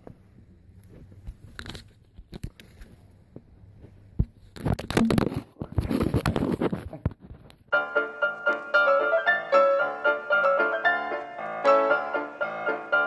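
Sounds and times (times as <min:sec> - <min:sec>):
rustling and scraping on microphone: 0:00.7 - 0:07.7
piano music: 0:07.7 - 0:13.0.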